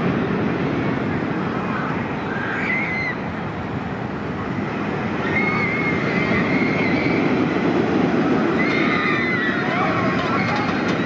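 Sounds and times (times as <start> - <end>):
roller coaster train rumbling on track: 0.0 - 11.0
faint high wavering squeals: 1.6 - 3.4, 5.2 - 7.4.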